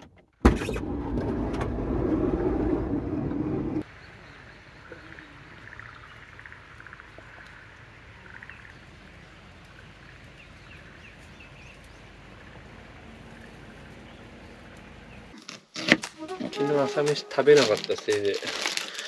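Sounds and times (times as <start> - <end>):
light rain falling: 3.8 - 15.2.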